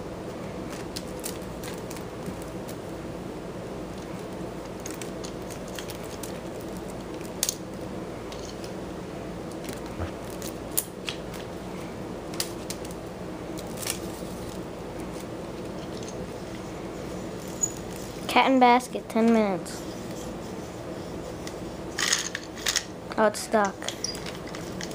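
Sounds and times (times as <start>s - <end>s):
steady low hum: 0.0s - 24.9s
claws clicking on wicker: 4.0s - 7.6s.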